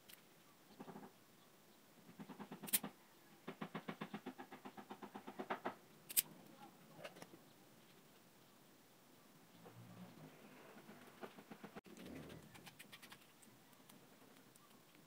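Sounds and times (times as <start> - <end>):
wire stripper snapping: 6.1 - 6.3.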